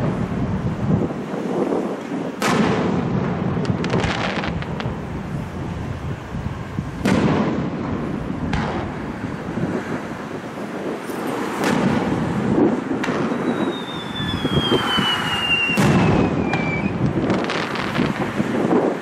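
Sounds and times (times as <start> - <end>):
firework shells bursting: 11.0 - 18.4
falling firework whistle: 13.0 - 18.2.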